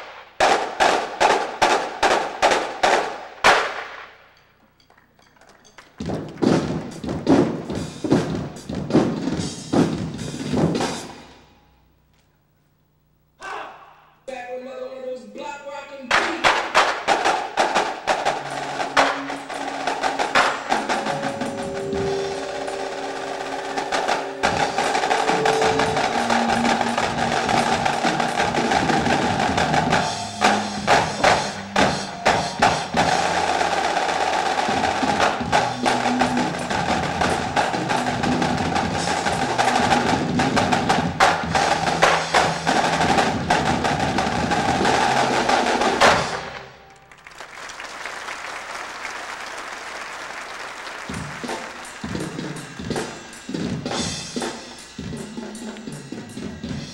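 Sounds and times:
snare drum rolls and hits: 0.0s - 4.2s, 5.9s - 11.3s, 16.1s - 46.7s, 51.0s - 55.3s
short pitched percussion notes: 17.2s - 47.1s.

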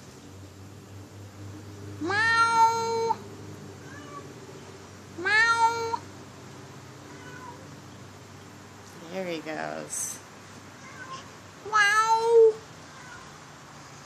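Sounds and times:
cat yowling: 2.0s - 3.2s, 3.8s - 4.3s, 5.2s - 6.0s, 7.0s - 7.7s, 10.8s - 13.4s.

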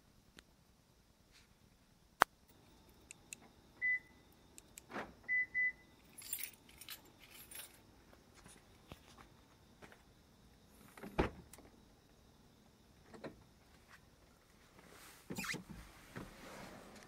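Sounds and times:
car answer-back beeps: 5.3s - 5.8s
keys rattling: 6.0s - 7.8s.

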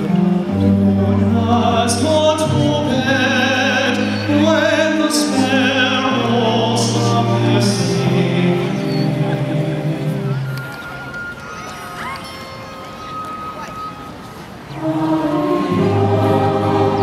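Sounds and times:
person singing with vibrato: 0.0s - 10.5s, 14.7s - 17.0s
sustained instrumental accompaniment: 0.0s - 17.0s.

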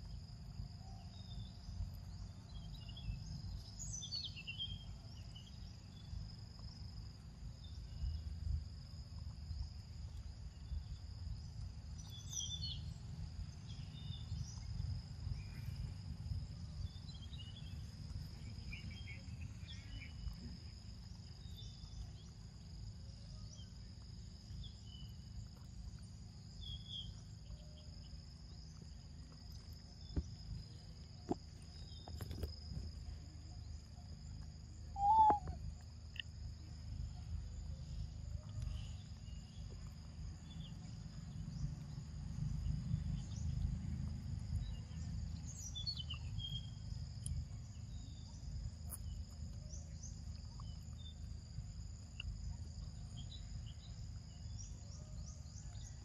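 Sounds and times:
insects droning: 0.0s - 56.0s
short call: 35.0s - 35.6s.

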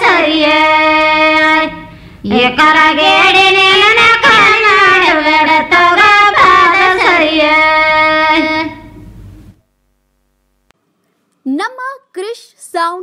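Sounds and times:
women singing folk song: 0.0s - 8.9s.

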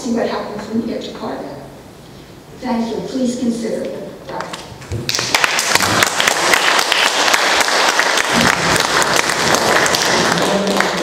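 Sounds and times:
individual hand claps: 4.4s - 11.0s
audience applauding: 5.1s - 11.0s.

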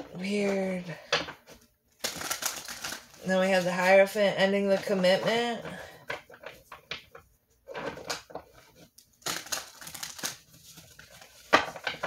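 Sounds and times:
cards shuffling: 2.0s - 3.9s, 7.9s - 12.0s.

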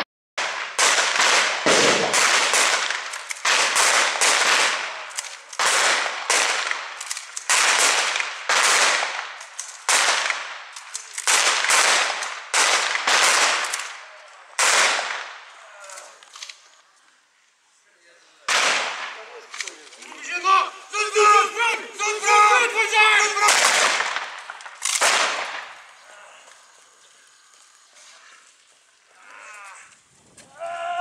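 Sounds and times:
gunshots with short echo: 0.4s - 5.0s.

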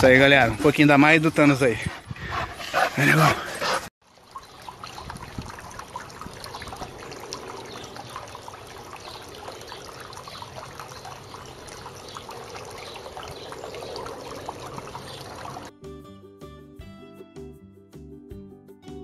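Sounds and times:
water running and trickling: 3.6s - 15.7s
small water splashes: 4.0s - 15.7s.

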